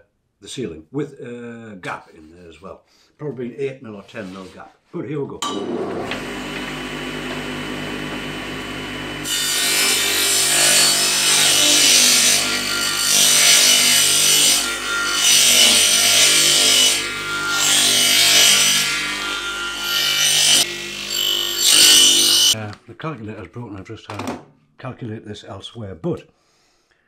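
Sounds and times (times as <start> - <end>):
table saw running: 5.4 - 22.6
saw ripping wooden board: 5.5 - 22.6.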